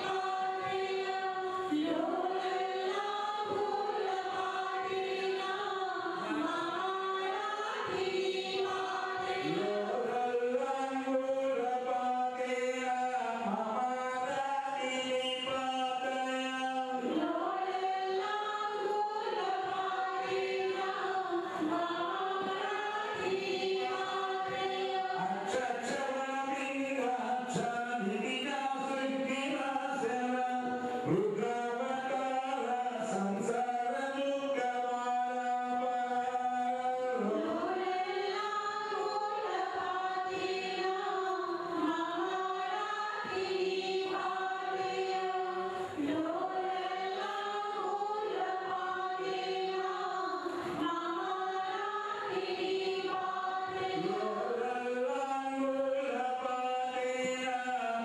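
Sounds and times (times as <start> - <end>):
group singing a devotional chant: 0.0 - 58.0.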